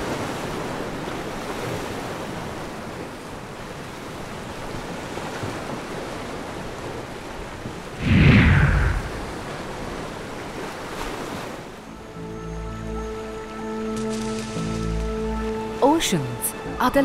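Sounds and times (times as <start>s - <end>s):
ocean waves washing: 0.0s - 11.9s.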